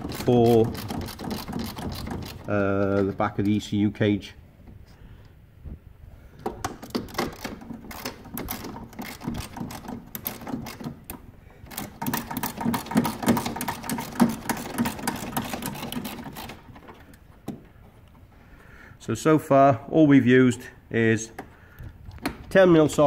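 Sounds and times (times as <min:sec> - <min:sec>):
hand ratchet clicking: 0:00.0 - 0:03.6, 0:06.6 - 0:17.2.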